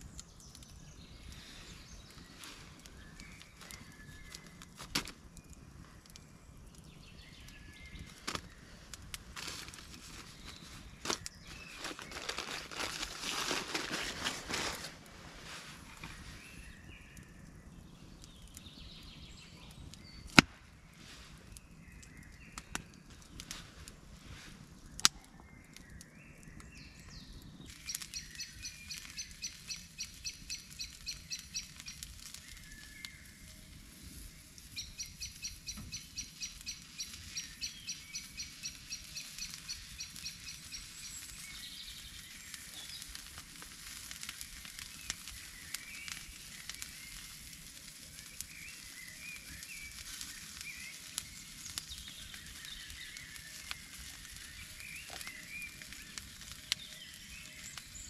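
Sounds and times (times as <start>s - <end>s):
rustling: 8.1s - 16.5s
sharp cracks: 20.2s - 20.8s.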